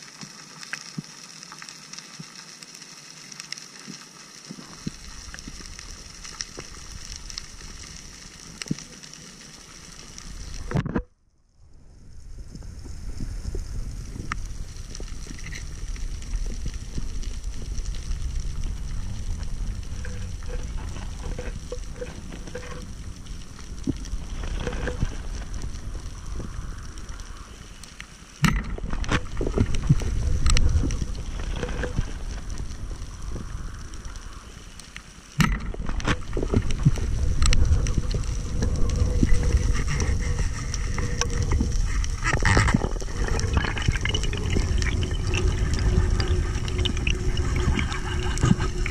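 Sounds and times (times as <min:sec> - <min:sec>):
underwater clicks and crackles: 0:00.0 - 0:11.4, 0:12.1 - 0:48.9
underwater water rushing rumble: 0:11.6 - 0:27.7, 0:28.4 - 0:34.6, 0:35.4 - 0:48.9.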